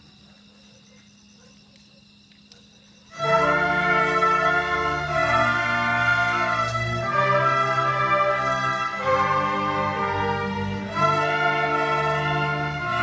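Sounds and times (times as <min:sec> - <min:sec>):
orchestra playing sustained chords: 0:03.1 - 0:13.0.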